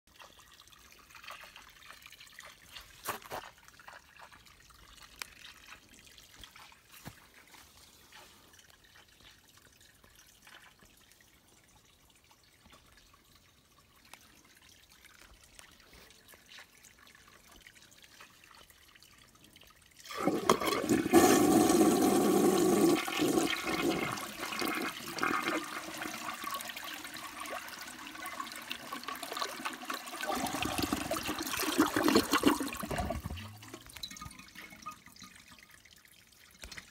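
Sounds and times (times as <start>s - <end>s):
toilet flushing: 20.0s - 35.2s.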